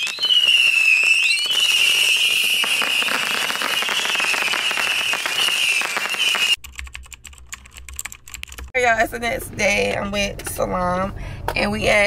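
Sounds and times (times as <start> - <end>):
fireworks crackling: 0.0 - 6.6
fireworks whistling: 0.0 - 6.6.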